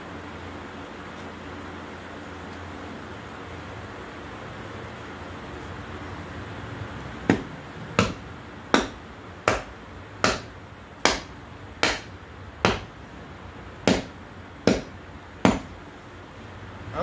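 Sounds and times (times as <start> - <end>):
sharp ringing knocks on metal: 7.3 - 13.0, 13.8 - 15.8.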